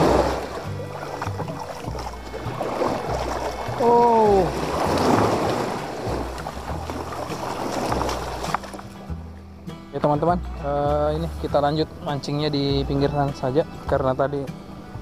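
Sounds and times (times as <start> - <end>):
surf breaking against hull: 0.0 - 8.9.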